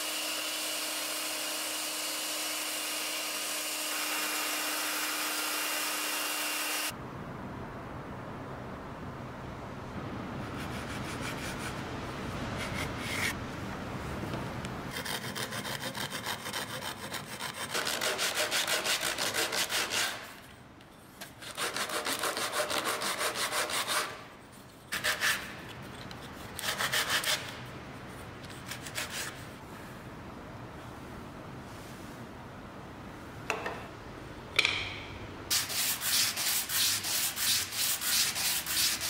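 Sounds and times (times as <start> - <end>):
wood sanding on sandpaper: 14.9 - 20.3, 21.3 - 24.2, 24.9 - 27.5, 35.5 - 39.0.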